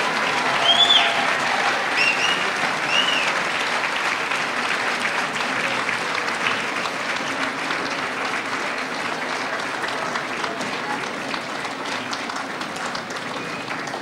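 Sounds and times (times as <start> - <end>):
audience applauding: 0.0 - 14.0
high whistles: 0.6 - 1.2, 2.0 - 3.3.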